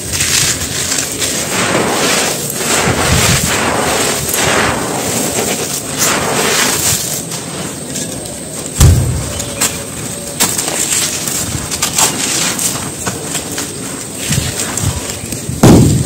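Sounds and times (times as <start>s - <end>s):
hands crunching dry dirt: 0.0s - 16.0s
heavy low thud: 8.8s - 9.8s, 15.6s - 16.0s.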